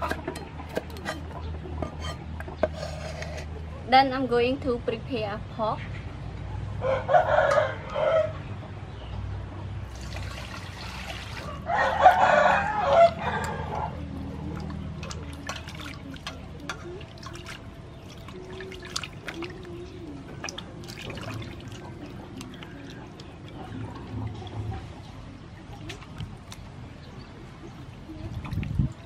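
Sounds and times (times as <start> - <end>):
rooster crowing: 6.8 - 8.4, 11.4 - 13.9
water splashing in steel bowl: 9.9 - 11.7, 12.7 - 29.0.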